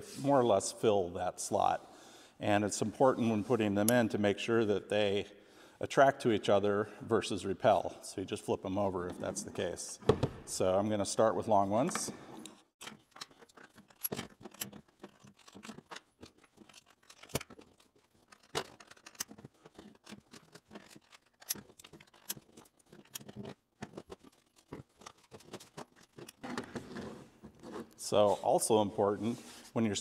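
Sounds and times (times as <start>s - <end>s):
magnets clicking into plastic slots: 12.4s - 26.6s.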